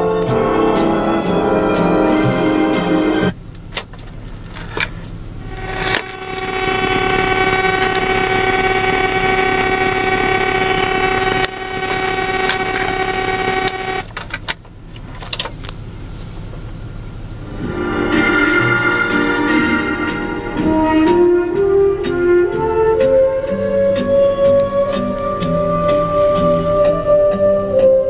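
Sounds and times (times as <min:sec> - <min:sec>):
steady pitched tone: 0:00.0 - 0:14.9, 0:15.6 - 0:28.0
cassette eject mechanism clicks: 0:03.6 - 0:05.0
cassette inserted clicks and clunks: 0:03.6 - 0:07.2, 0:13.6 - 0:15.8.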